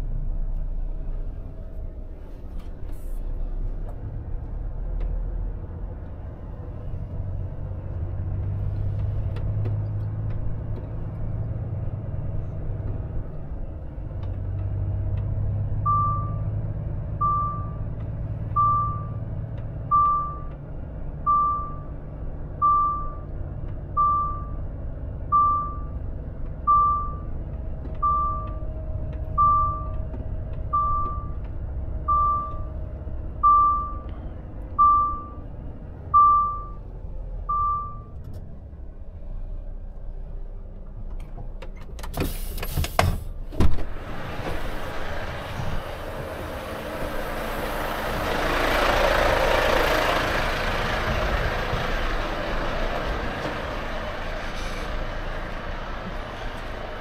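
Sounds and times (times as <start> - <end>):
diesel engine humming: 0.0 - 57.0
outside noise: 0.0 - 57.0
truck reversing beeper: 15.7 - 20.6, 21.2 - 23.3, 23.9 - 26.0, 26.6 - 27.4, 28.0 - 28.6, 29.3 - 30.0, 30.7 - 31.4, 32.0 - 34.1, 34.8 - 38.2.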